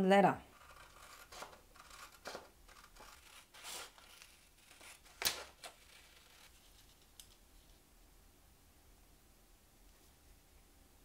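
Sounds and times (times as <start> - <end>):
scissors snipping paper: 0.5 - 7.4
paper rustling: 0.6 - 7.8.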